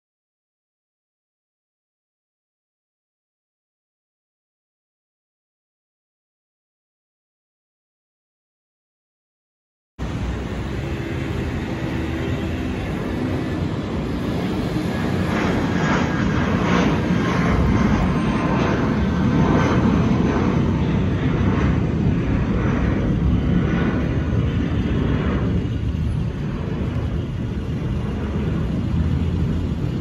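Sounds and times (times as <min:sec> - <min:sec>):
jet engines rumbling overhead: 0:10.0 - 0:30.0.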